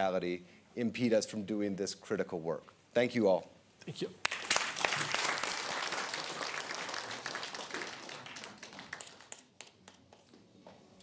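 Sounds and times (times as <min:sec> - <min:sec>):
audience applauding: 0:04.2 - 0:10.3.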